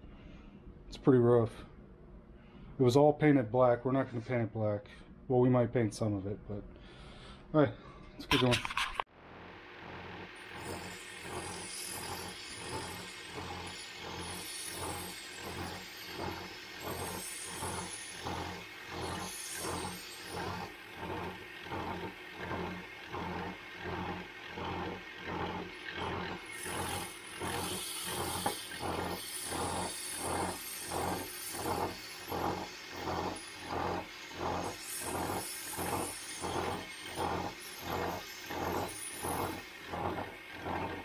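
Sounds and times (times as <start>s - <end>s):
belt sander motor hum: 9.2s - 41.0s
metal grinding hiss: 9.7s - 41.0s.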